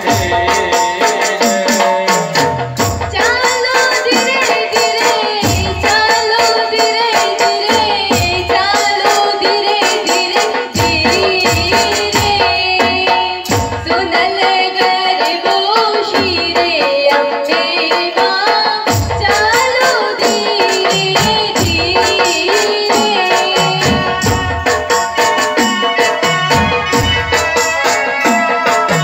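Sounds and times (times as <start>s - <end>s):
fast percussion beat: 0.0s - 29.0s
woman singing into a microphone: 0.0s - 29.0s.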